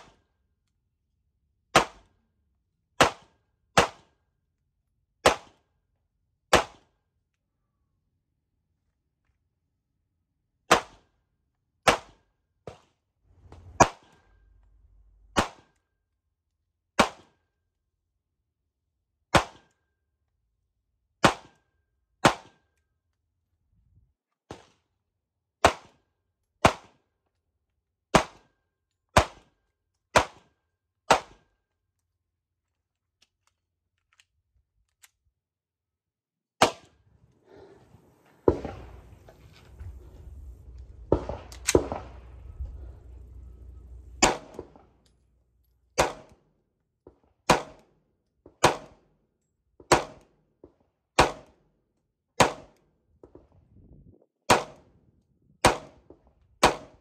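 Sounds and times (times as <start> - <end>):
pistol shots: 6.5 - 6.9, 15.3 - 15.8, 17.0 - 17.4, 30.1 - 30.5, 38.4 - 45.0, 46.0 - 46.4, 47.4 - 47.9, 48.6 - 49.0, 49.9 - 50.3, 51.2 - 51.6, 52.4 - 52.8, 54.5 - 54.8, 55.6 - 56.0, 56.6 - 57.0.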